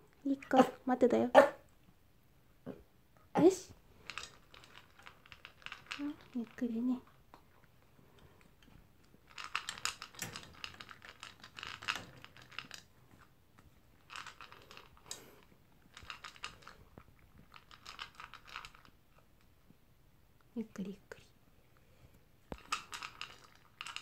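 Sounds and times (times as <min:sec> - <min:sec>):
dog crunching food: 0:04.0 - 0:06.6, 0:09.1 - 0:13.3, 0:14.0 - 0:18.9, 0:22.5 - 0:24.0.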